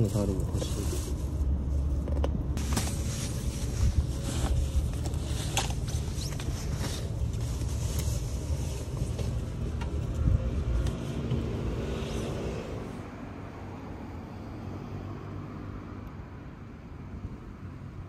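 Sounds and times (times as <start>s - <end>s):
steady low rumble: 0.0s - 12.2s.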